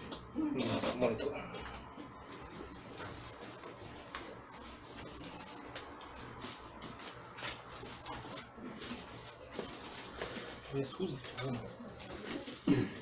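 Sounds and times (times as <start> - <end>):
plastic wrap rustling and crinkling: 2.1 - 13.0.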